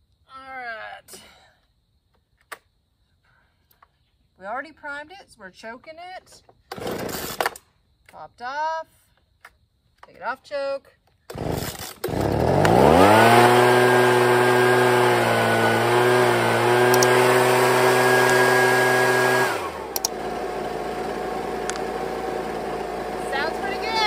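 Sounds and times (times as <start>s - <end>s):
leaf blower engine revving: 11.3s - 24.0s.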